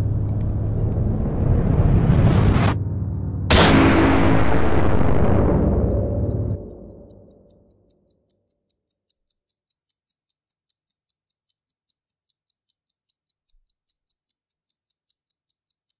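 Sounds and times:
deep boom: 0.7 - 7.5
fast even ticking: 4.3 - 15.9.

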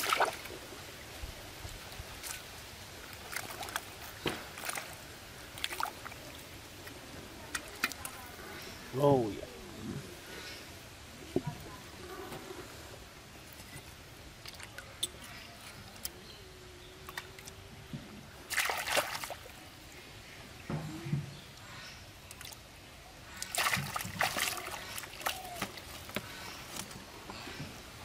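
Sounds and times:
hands squelching in wet mud: 0.0 - 0.5, 2.1 - 8.1, 18.4 - 19.6, 23.3 - 26.9
small wet clicks: 3.1 - 8.3, 13.4 - 16.3, 17.0 - 17.6, 21.5 - 22.7.

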